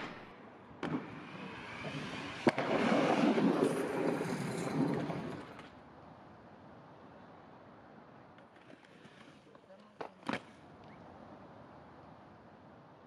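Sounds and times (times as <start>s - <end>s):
skate wheels rolling on paving: 0.0s - 13.0s
skates clacking onto ground: 8.3s - 11.0s.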